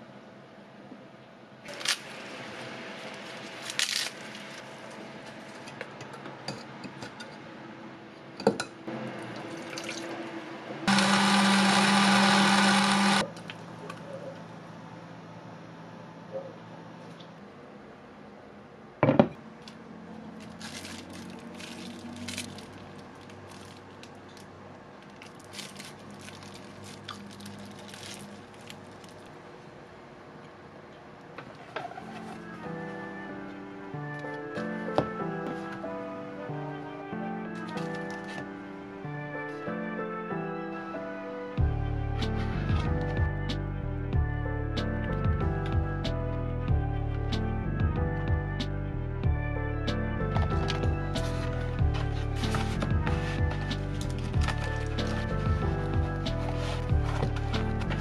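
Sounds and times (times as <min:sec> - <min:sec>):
electric blender running: 0:10.9 - 0:13.3.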